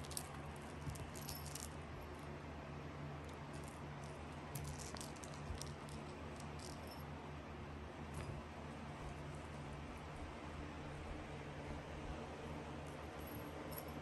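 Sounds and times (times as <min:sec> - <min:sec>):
steady low hum: 0:00.0 - 0:14.0
kitten batting toys: 0:03.2 - 0:07.0.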